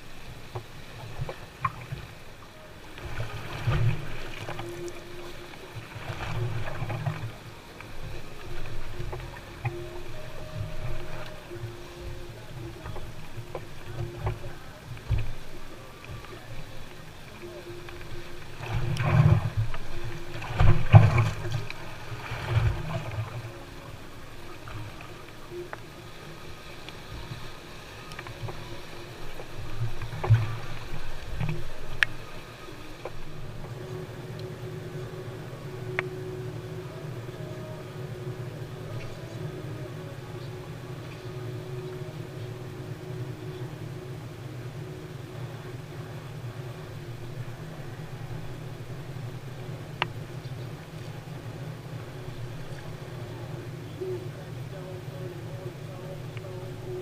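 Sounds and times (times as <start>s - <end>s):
water slapping boat hull: 0.0s - 57.0s
water slapping against boat hull: 3.0s - 25.8s.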